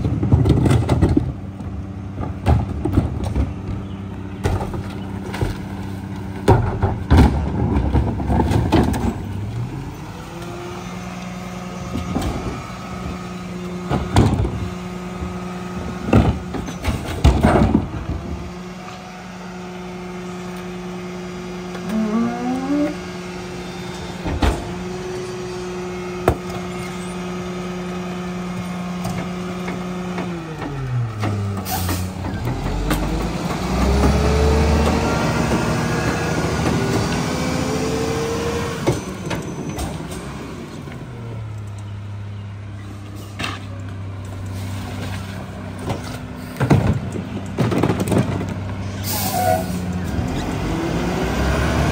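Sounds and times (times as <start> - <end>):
trash dropping with knocks: 0.0 - 3.6, 4.4 - 9.4, 13.8 - 14.7, 15.9 - 18.4, 45.0 - 48.6
trash bins banging: 0.0 - 3.8, 4.4 - 9.4, 11.8 - 18.5, 45.0 - 48.8
hydraulic packer humming: 0.0 - 51.9
rising squeal: 21.8 - 24.2.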